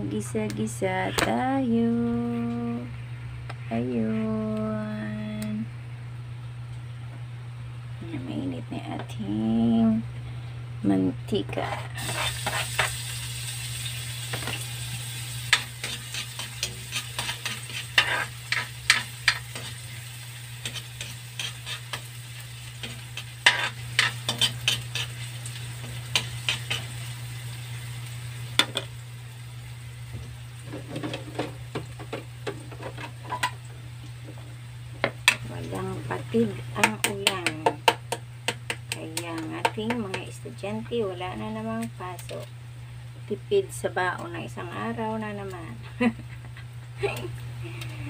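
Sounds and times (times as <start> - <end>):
low steady hum: 0.0 - 48.0
metal spoon scraping a wok: 11.6 - 12.9, 15.5 - 19.8, 20.6 - 22.1, 22.8 - 25.2
garlic sizzling in hot oil: 12.0 - 46.3.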